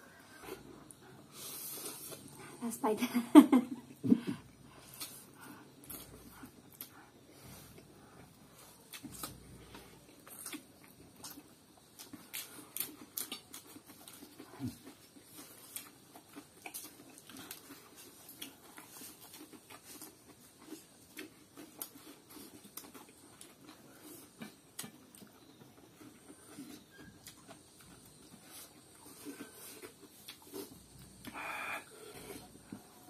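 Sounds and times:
slurping and chewing: 0.1s - 2.4s, 4.4s - 33.0s.

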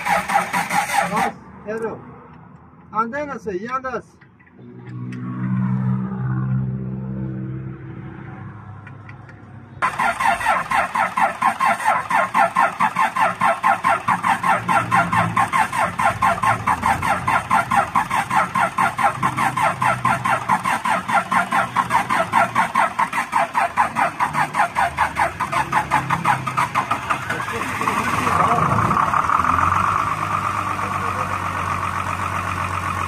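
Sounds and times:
starter motor cranking diesel engine: 0.0s - 1.4s, 9.8s - 33.0s.

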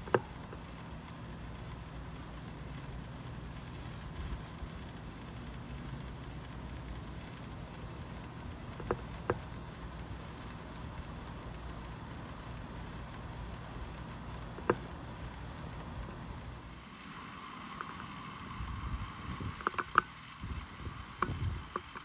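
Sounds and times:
sprinkler sharp clicks: 0.0s - 22.0s
sprinkler water spray hissing: 16.7s - 22.0s.

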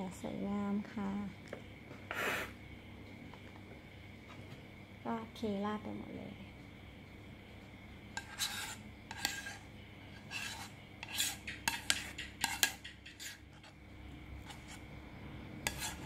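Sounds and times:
metal spoon scraping a saucepan: 8.2s - 13.8s, 14.4s - 14.8s, 15.6s - 16.0s.

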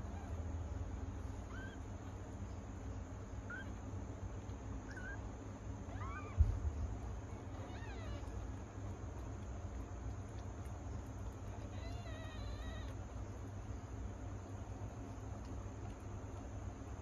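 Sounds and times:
kittens mewing: 1.3s - 2.0s, 3.5s - 3.8s, 4.8s - 6.6s, 7.3s - 8.6s, 11.3s - 13.0s.

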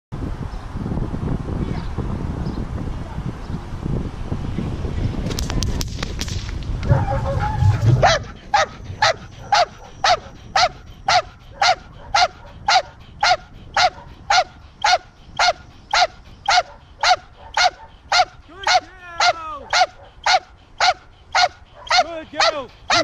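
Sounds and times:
low rumbling noise: 1.1s - 11.1s
dog barking loudly: 6.9s - 23.0s.

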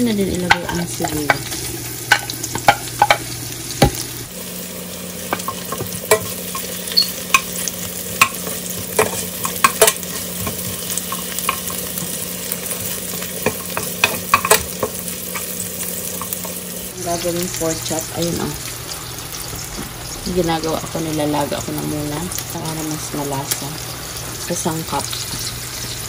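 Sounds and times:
food sizzling in oil: 0.0s - 26.0s
metal spoon scraping a pan: 5.3s - 16.6s.

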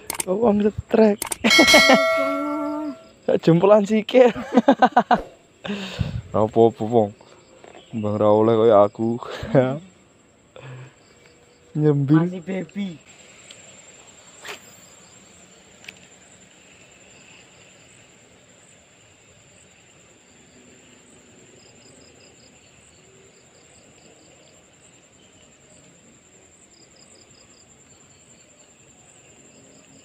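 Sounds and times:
single sharp click: 0.0s - 0.3s, 1.2s - 2.4s
high-pitched insect whine: 0.0s - 30.0s
insects chirping: 0.0s - 30.0s.

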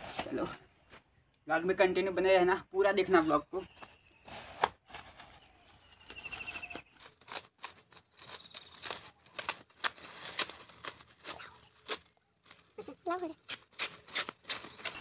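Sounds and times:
plastic mailer rustling and crinkling: 4.0s - 15.0s.

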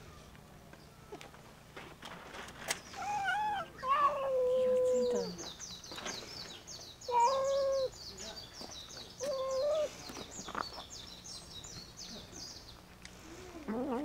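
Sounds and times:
cat meowing: 3.1s - 5.4s, 7.1s - 7.9s.

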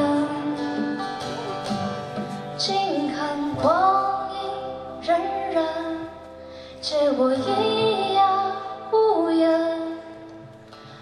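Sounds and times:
woman singing: 0.0s - 1.1s, 2.6s - 6.2s, 6.8s - 10.3s
strummed acoustic guitars: 0.0s - 11.0s.

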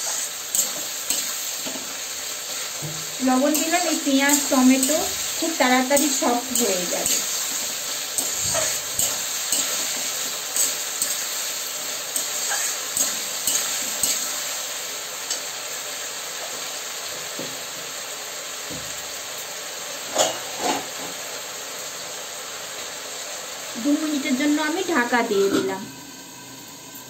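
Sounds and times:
onions sizzling in oil: 0.0s - 27.0s
metal spatula scraping pan: 2.8s - 11.3s, 12.2s - 14.4s.

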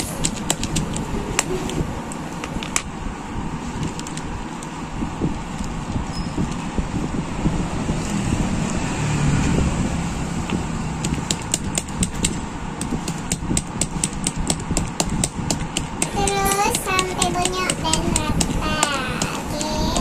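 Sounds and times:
low rumble: 0.0s - 13.8s
metal tool tapping through plastic: 11.0s - 20.0s.

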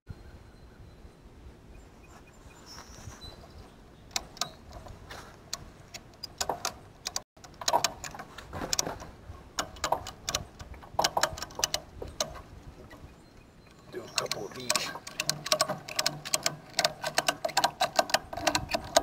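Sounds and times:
ratchet strap clicking: 4.1s - 12.4s, 14.1s - 19.0s.

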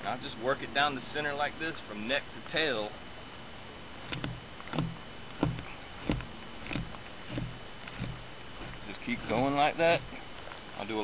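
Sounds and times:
knife scraping hide: 4.1s - 10.2s.

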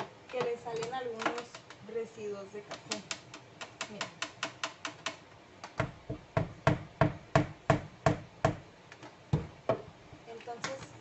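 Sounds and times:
knocking on espresso machine: 5.8s - 8.6s.

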